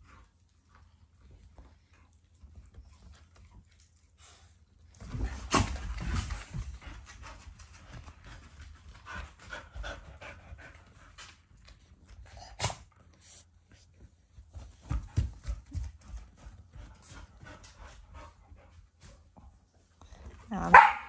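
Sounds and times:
dog panting: 6.2s - 20.3s.

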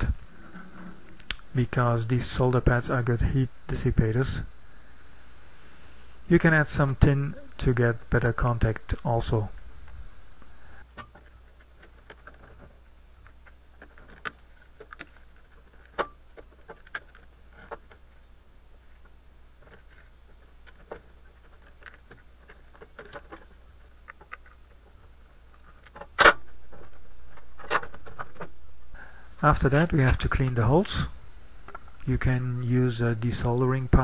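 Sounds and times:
low hum: 0.0s - 34.0s.

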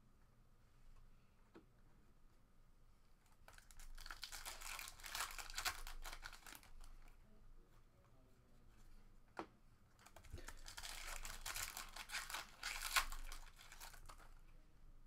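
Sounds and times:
foil wrapper crinkling and tearing: 3.5s - 7.0s, 10.0s - 14.4s.

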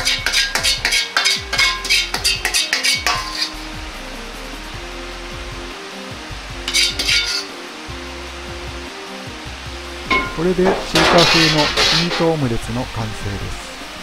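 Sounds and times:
metal ladle clinking on wok: 0.0s - 3.5s, 10.1s - 12.3s.

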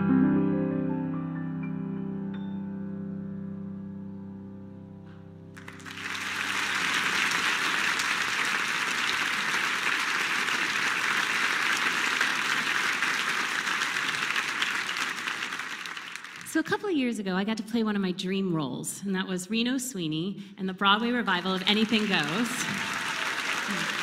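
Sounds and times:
piano chord: 0.0s - 6.0s
audience applause: 5.6s - 16.6s, 21.3s - 24.0s.

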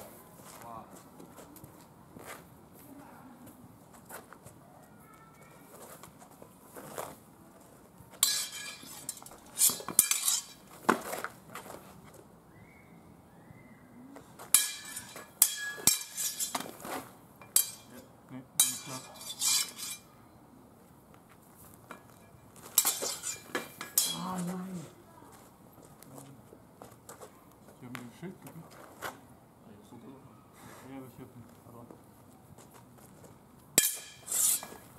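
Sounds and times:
swords clashing: 8.2s - 10.7s, 14.5s - 20.1s, 22.8s - 24.6s, 33.8s - 34.9s.

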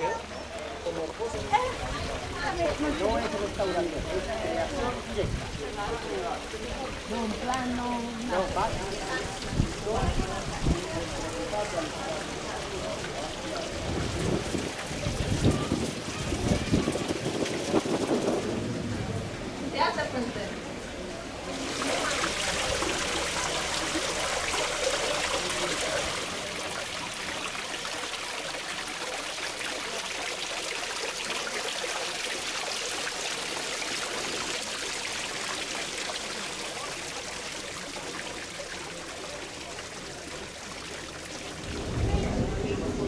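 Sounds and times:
fountain water trickling and splashing: 0.0s - 43.0s.

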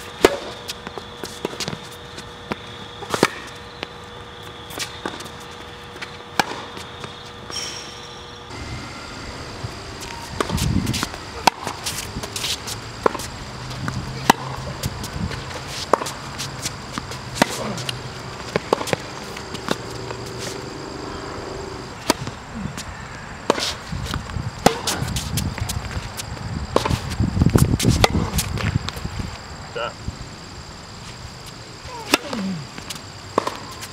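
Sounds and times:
tennis balls struck by rackets: 0.2s - 1.8s, 2.4s - 4.0s, 6.0s - 8.7s, 9.4s - 29.0s, 32.0s - 33.9s
tennis balls bouncing on hard court: 9.9s - 22.4s, 23.4s - 29.0s, 32.1s - 33.9s.

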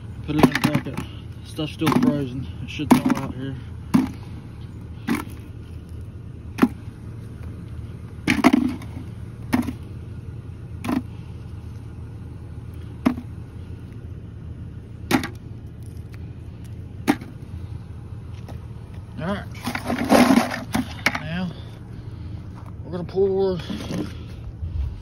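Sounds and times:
low rumble: 3.6s - 25.0s.

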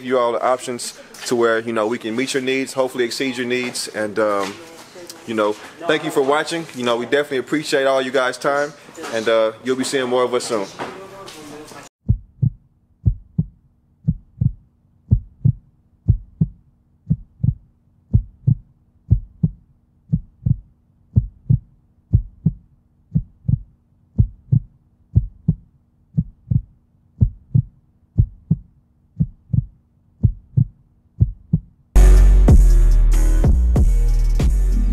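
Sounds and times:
heartbeat thumps: 12.0s - 31.8s.

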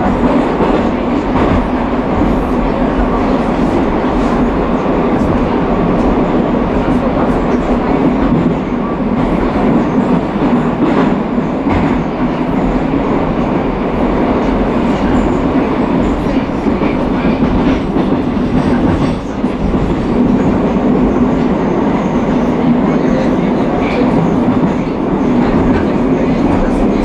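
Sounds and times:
rail clacks: 0.0s - 27.0s
train wheels rumbling on rail: 0.0s - 27.0s.

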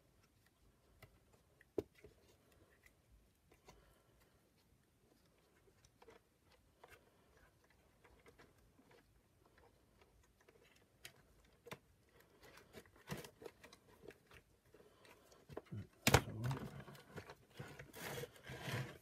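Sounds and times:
plastic parts and wires handled: 0.0s - 19.0s.

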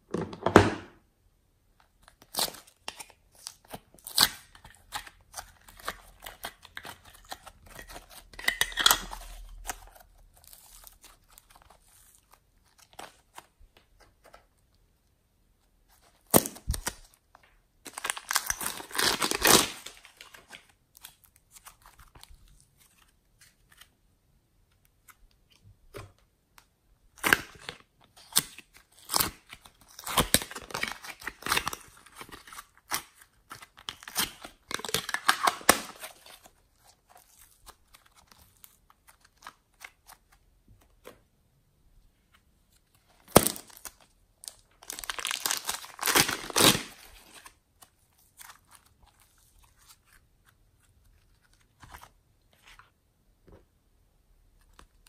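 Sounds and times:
plastic packaging crinkling: 16.2s - 23.8s, 43.2s - 50.2s.

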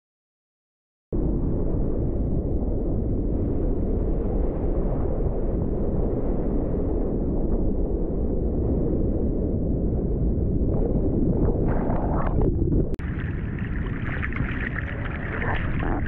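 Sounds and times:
wind buffeting microphone: 1.2s - 16.0s
water buffeting microphone: 10.6s - 16.0s.

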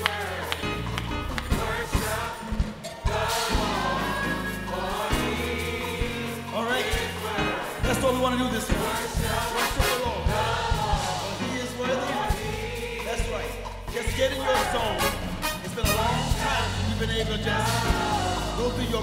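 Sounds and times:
gospel choir singing: 0.0s - 19.0s
live band drums and bass: 0.0s - 19.0s.

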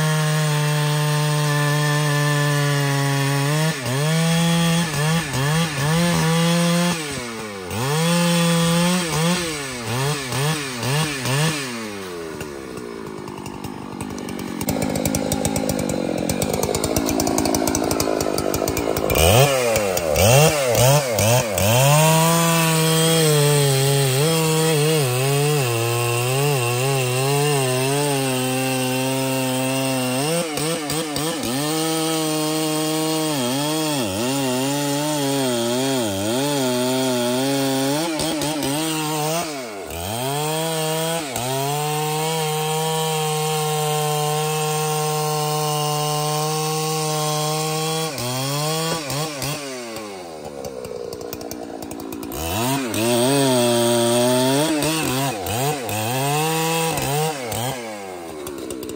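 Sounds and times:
chainsaw cutting wood: 0.0s - 58.9s.

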